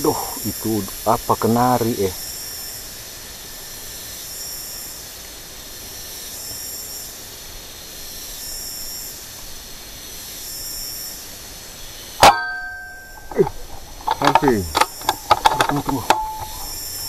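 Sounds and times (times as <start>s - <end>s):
insects buzzing: 0.0s - 17.0s
low hiss: 0.0s - 17.0s
air rifle firing: 12.2s - 17.0s.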